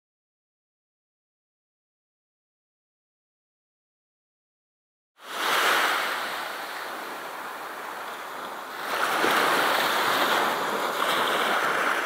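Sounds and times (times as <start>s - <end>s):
surf washing on shore: 5.2s - 12.0s
wind: 5.2s - 12.0s.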